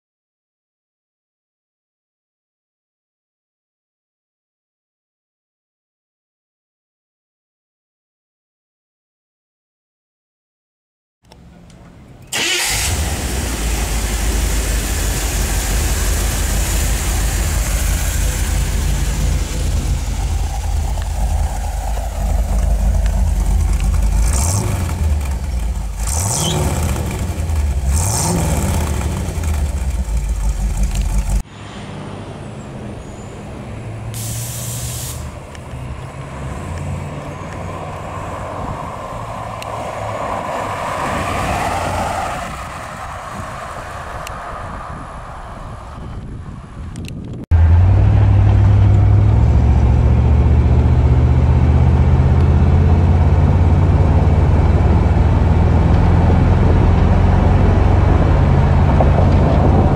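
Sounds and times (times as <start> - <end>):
car engine idling and revving: 11.3 - 46.1, 46.8 - 59.9
car driving on road: 11.3 - 59.9.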